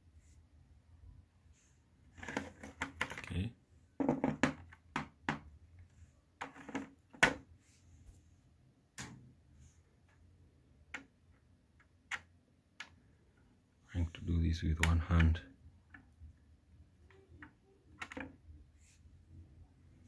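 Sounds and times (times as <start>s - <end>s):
plastic casing clicking and knocking: 2.2s - 3.3s.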